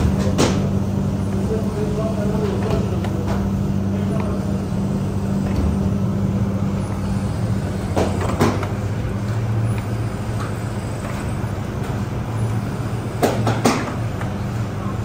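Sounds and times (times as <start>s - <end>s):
machine motor humming: 0.0s - 15.0s.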